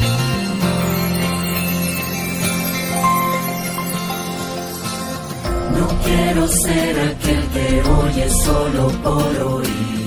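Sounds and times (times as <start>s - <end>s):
instrumental music with held notes: 0.0s - 6.2s.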